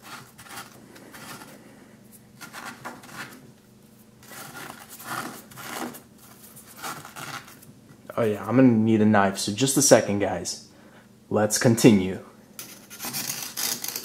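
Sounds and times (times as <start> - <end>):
fingers scraping hardened crust: 0.0 - 1.6, 2.4 - 3.4, 4.2 - 7.7, 12.7 - 14.0.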